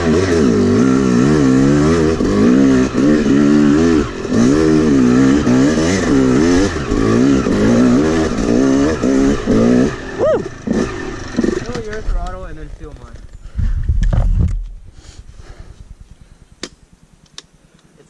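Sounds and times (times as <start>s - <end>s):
dirt bike engine revving: 0.0s - 13.4s.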